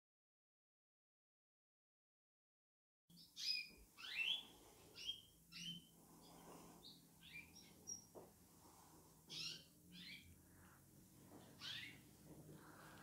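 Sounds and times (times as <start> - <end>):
canaries chirping: 3.1 - 8.2, 9.3 - 10.4, 11.5 - 12.9.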